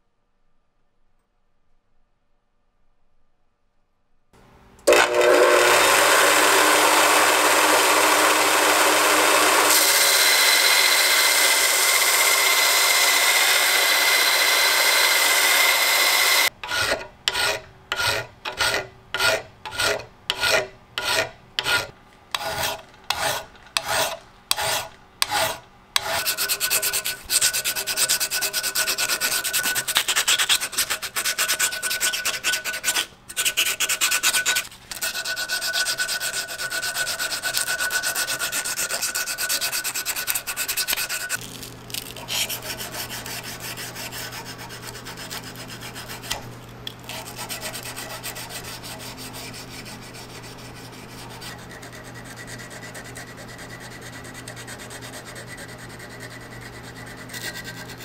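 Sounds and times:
hand file scraping steel: 5.4 - 41.4, 42.0 - 58.0
sandpaper sanding steel: 6.0 - 41.4, 42.1 - 46.4, 47.0 - 58.0.

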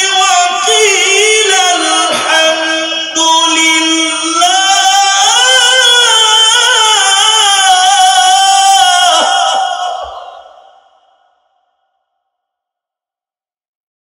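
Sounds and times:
man chanting through a microphone: 0.0 - 10.9.

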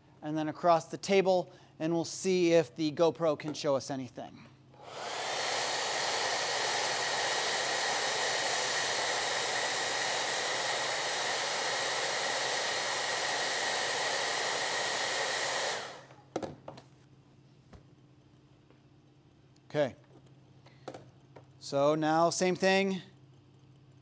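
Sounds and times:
hair dryer blowing: 4.8 - 16.2.

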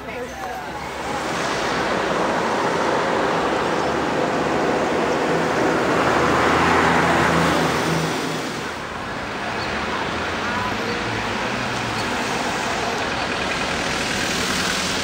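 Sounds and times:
large vehicle driving past: 0.5 - 15.0.

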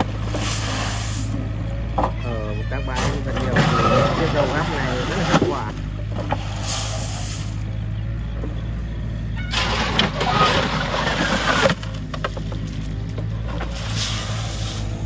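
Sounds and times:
gravel pouring and rattling: 0.0 - 1.6, 3.4 - 7.7, 9.5 - 15.0
excavator engine running: 0.0 - 15.0.

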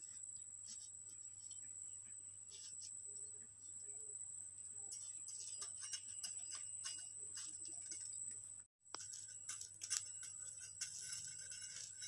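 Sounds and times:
bread toasting crackles: 4.8 - 12.0.

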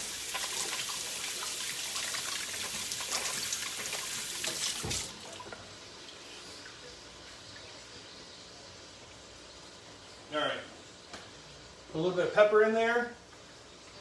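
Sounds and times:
tap water running into sink: 0.0 - 5.6.

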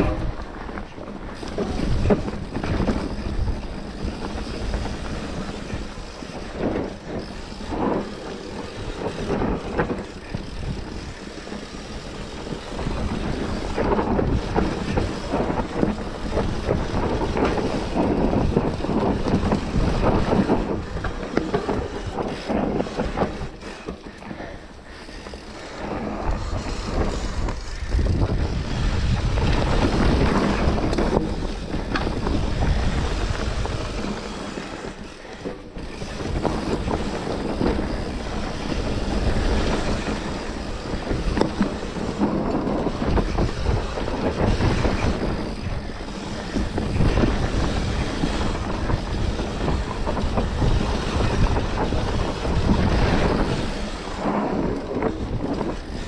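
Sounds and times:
wind on microphone: 0.0 - 24.0, 24.8 - 56.0
bike rumbling and rattling: 0.0 - 56.0.

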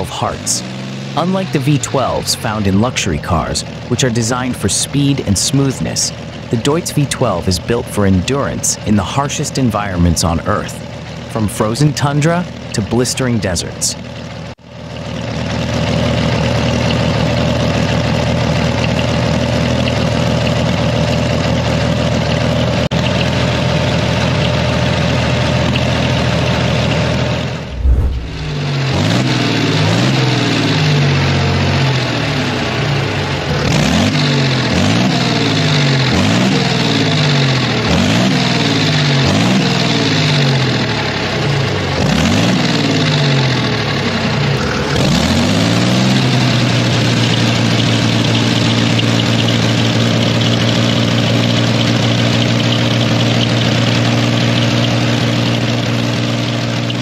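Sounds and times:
diesel engine running and revving: 0.0 - 57.0.

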